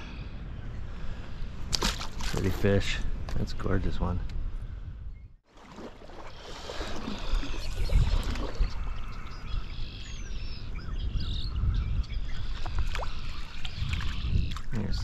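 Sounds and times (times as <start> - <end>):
gusty wind buffeting microphone: 2.5 - 5.4, 6.6 - 15.0.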